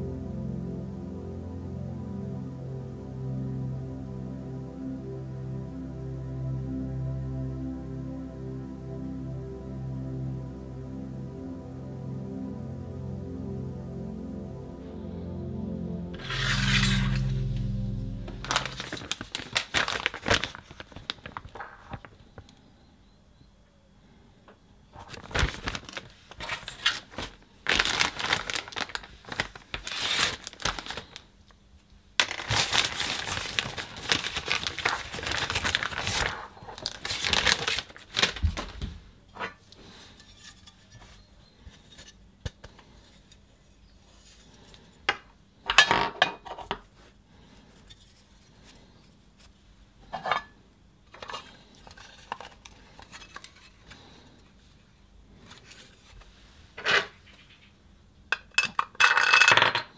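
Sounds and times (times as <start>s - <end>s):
plastic bag tearing and crinkling: 16.2s - 22.1s, 25.0s - 31.2s, 32.2s - 38.8s.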